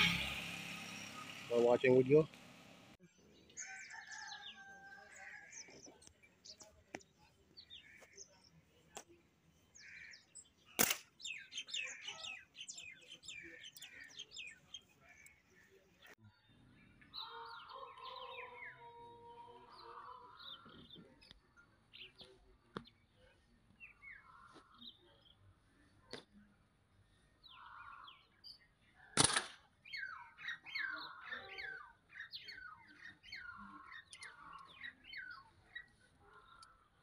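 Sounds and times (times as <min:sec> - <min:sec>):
small birds chirping: 0:00.8 - 0:37.0
slingshot snap: 0:10.8 - 0:11.1.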